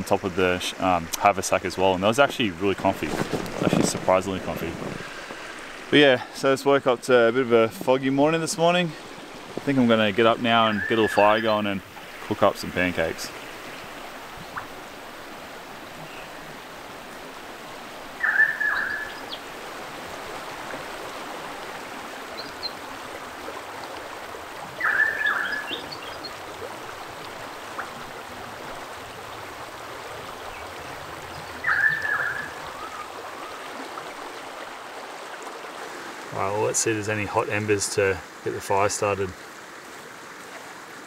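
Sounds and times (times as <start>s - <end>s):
river water rushing over rocks: 0.0s - 41.0s
bird call: 10.6s - 11.6s, 18.2s - 19.4s, 24.8s - 26.3s, 31.3s - 33.6s.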